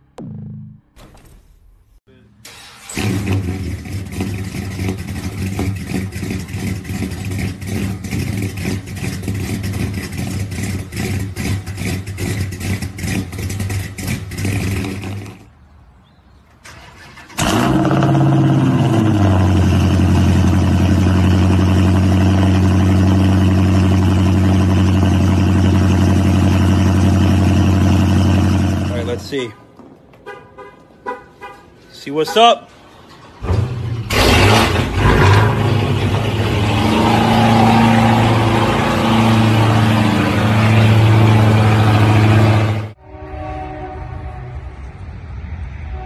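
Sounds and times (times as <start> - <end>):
car engine cold start flare: 2.4 - 15.4, 16.6 - 20.4, 33.0 - 39.9.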